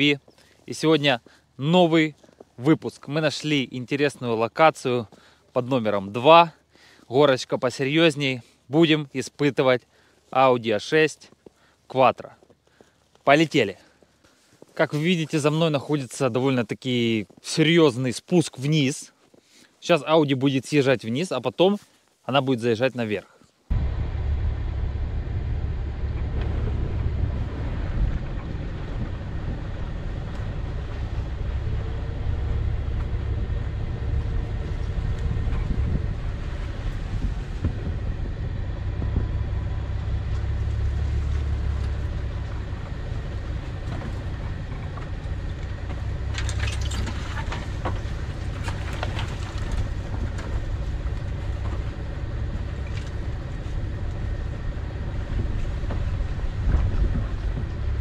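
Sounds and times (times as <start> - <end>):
car engine low rumble: 23.7 - 58.0
knocks and scrapes: 40.3 - 53.2.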